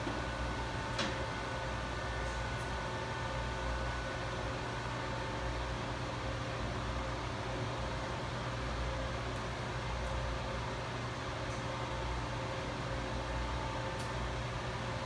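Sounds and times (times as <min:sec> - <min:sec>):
low electrical drone: 0:00.0 - 0:15.0
machinery hum: 0:00.0 - 0:15.0.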